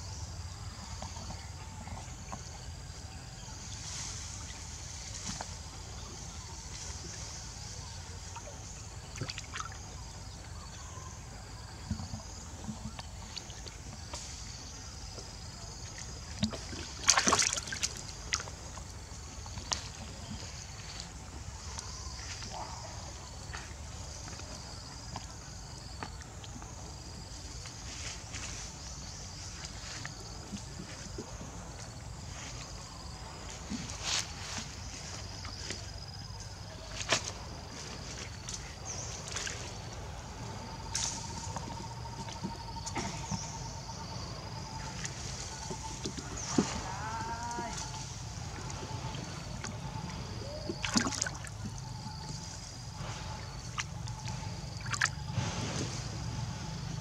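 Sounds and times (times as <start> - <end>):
hands splashing in tub of water: 16.3 - 18.5, 50.7 - 52.4.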